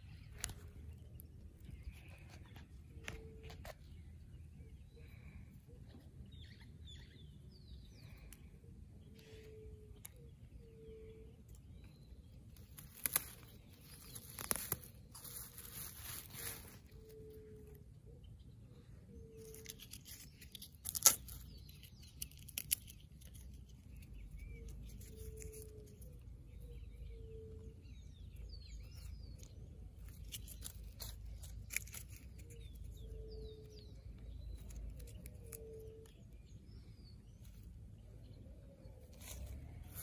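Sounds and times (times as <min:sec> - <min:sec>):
faint bird chirps: 0:00.0 - 0:40.0
twigs clicking and knocking: 0:00.1 - 0:04.0, 0:09.4 - 0:17.8, 0:19.2 - 0:36.7, 0:37.3 - 0:40.0
sharp wood crack: 0:20.7 - 0:23.0.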